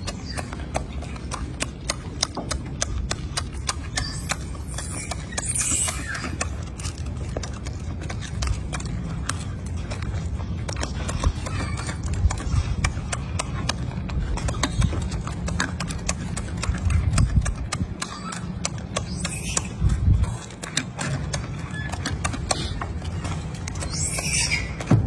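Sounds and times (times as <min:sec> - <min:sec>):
monkey chewing with mouth clicks: 0:00.0 - 0:25.0.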